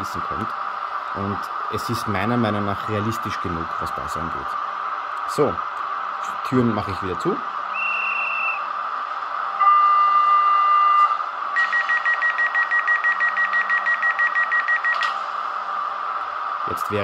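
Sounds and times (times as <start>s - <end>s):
door-closing warning beeps: 9.9s - 15.1s.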